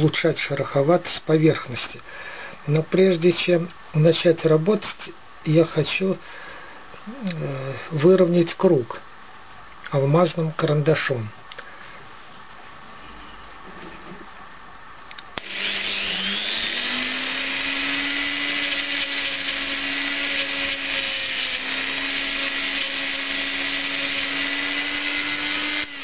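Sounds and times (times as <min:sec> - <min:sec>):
rotary tool spinning: 0:15.4 - 0:26.0.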